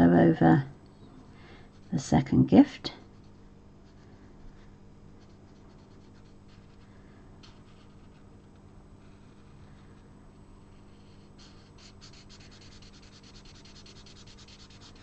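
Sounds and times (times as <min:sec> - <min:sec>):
marker scratching on cardstock: 0:10.8 - 0:15.0.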